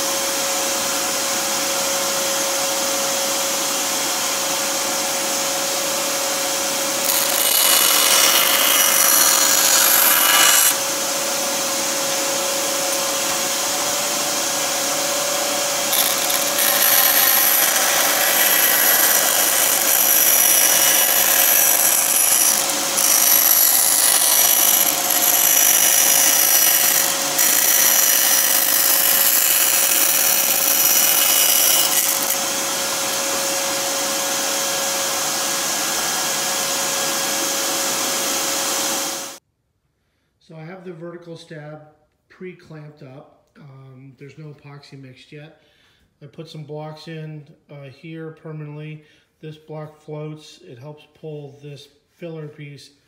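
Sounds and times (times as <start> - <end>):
bandsaw humming: 4.1 - 39.4
bandsaw blade cutting plywood: 6.7 - 11.0, 11.8 - 33.8.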